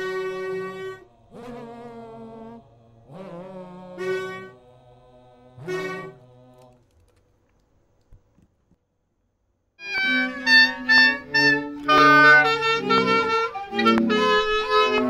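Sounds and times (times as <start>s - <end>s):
saxophone held notes: 0.0s - 4.6s, 9.8s - 15.0s
faint clicks: 6.5s - 8.8s.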